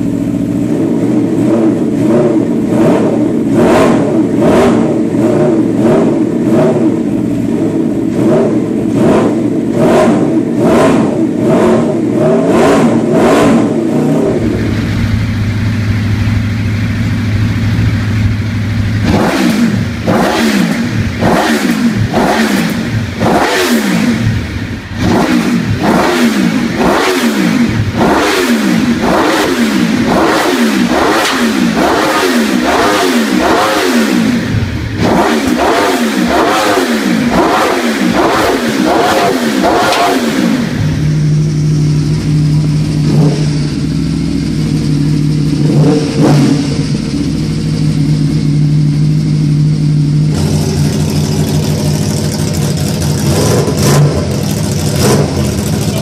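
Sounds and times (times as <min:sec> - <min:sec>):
motorcycle engine idling: 0:00.0 - 0:12.2, 0:12.9 - 0:56.0
motorcycle engine revving: 0:00.0 - 0:56.0
exhaust backfire cracks: 0:50.2 - 0:56.0.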